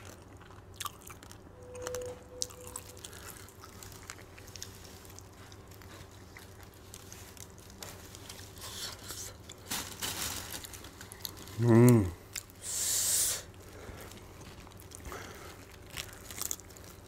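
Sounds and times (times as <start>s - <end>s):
biting and chewing: 0.0s - 9.8s, 13.5s - 17.0s
faint steady hum: 0.0s - 17.0s.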